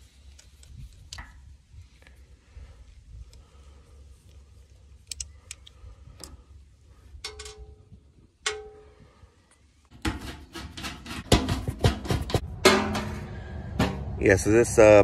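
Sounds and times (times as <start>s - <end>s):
metal tools tapping on sheet metal: 7.2s - 7.8s, 9.9s - 14.1s
metal clanks and rattles: 7.2s - 9.2s, 9.9s - 14.4s.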